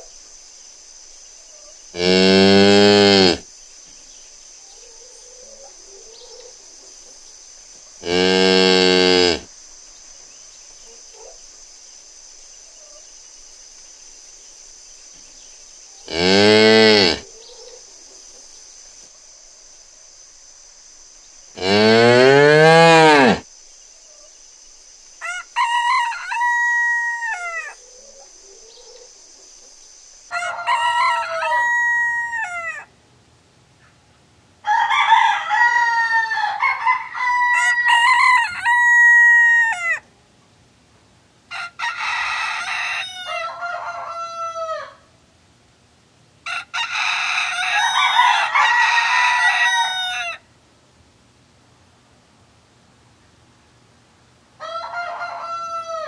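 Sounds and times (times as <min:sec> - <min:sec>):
roosters crowing: 0:01.9 - 0:03.5, 0:08.0 - 0:09.5, 0:16.0 - 0:17.8, 0:21.6 - 0:23.5, 0:25.2 - 0:28.8, 0:30.3 - 0:32.9, 0:34.6 - 0:40.0, 0:41.5 - 0:45.1, 0:46.4 - 0:50.4, 0:54.6 - 0:56.0
cow mooing: 0:02.0 - 0:03.4, 0:08.0 - 0:09.5, 0:16.1 - 0:17.2, 0:21.6 - 0:23.4.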